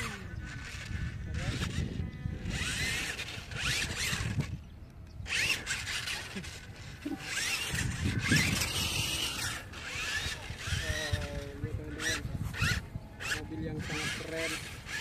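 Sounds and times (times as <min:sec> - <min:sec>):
toy truck motors whining: 0:00.0 - 0:15.0.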